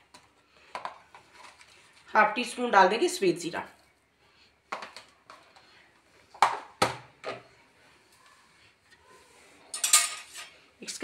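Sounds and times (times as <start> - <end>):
kitchen utensils knocking: 9.8 - 10.5.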